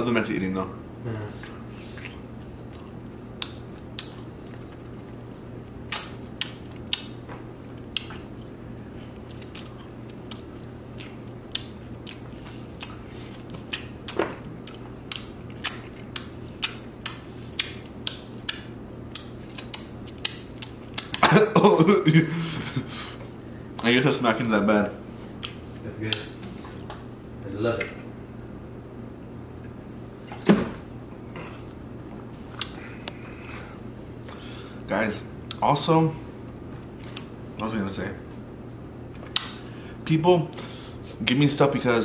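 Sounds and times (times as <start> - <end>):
steady low hum: 0.0 - 42.0
chewing and mouth smacks: 1.4 - 21.2, 25.4 - 27.0, 32.4 - 33.6, 37.0 - 37.4.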